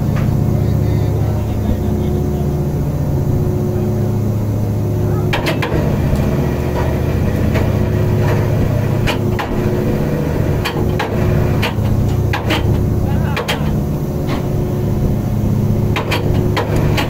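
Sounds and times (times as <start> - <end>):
engine and hydraulic machinery drone: 0.0 - 17.0
sharp knocks and clacks: 10.6 - 12.8, 13.4 - 14.5, 15.9 - 17.0.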